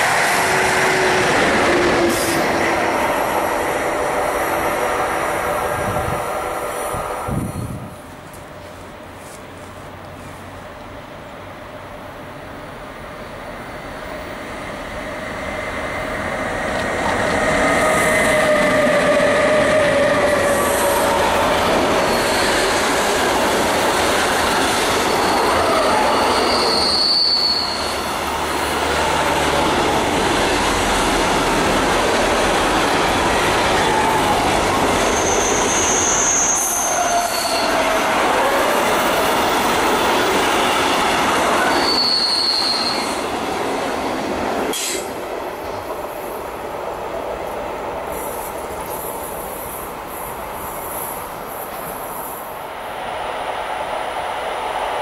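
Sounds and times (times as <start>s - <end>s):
freight train rolling past: 0.0s - 55.0s
train wheel squeal: 17.0s - 23.3s, 24.5s - 28.3s, 34.9s - 39.6s, 40.4s - 43.4s, 44.7s - 45.1s
short sharp high squeals: 25.0s - 28.1s, 35.0s - 37.9s, 41.6s - 43.2s.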